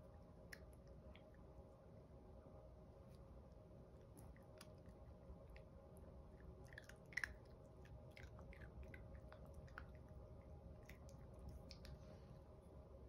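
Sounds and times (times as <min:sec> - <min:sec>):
puppies chewing dry kibble: 0:06.3 - 0:12.0.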